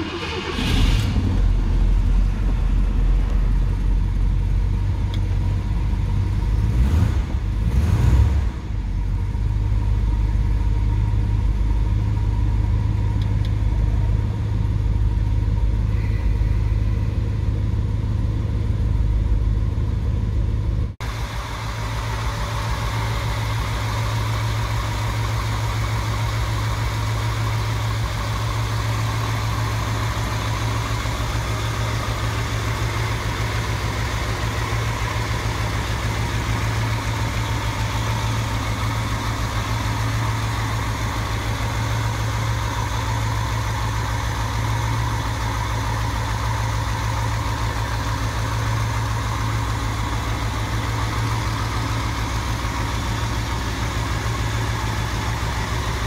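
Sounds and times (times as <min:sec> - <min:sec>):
engine revving: 0:00.0 - 0:03.4, 0:06.4 - 0:08.9
car engine idling: 0:00.0 - 0:56.0
car engine starting: 0:00.0 - 0:56.0.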